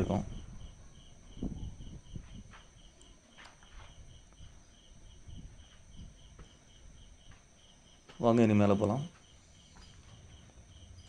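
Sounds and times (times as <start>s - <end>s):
footsteps on concrete floor: 2.2s - 4.6s, 5.5s - 8.3s, 9.0s - 10.6s
faint high chirp: 9.4s - 10.2s.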